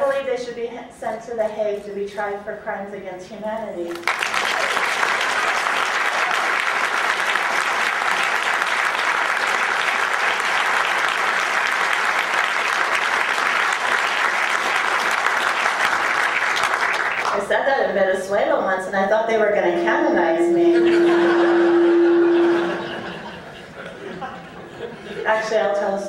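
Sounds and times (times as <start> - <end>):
audience applauding: 3.9 - 17.3.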